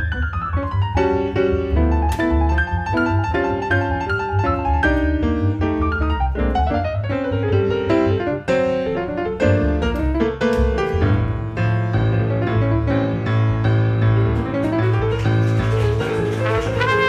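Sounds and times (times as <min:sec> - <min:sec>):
jazz piano solo: 0:00.0 - 0:17.0
upright bass low notes: 0:00.0 - 0:17.0.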